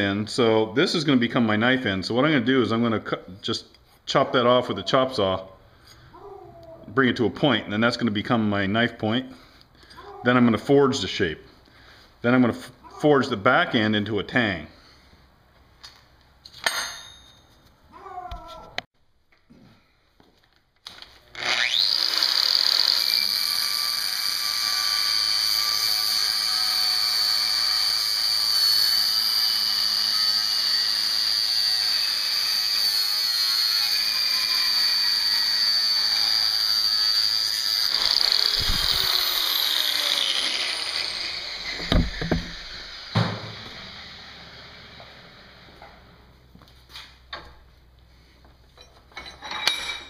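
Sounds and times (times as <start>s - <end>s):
angle grinder cutting steel: 21.3s - 46.2s
grinder wheel spinning down: 21.3s - 46.2s
sharp clunks: 41.8s - 42.6s.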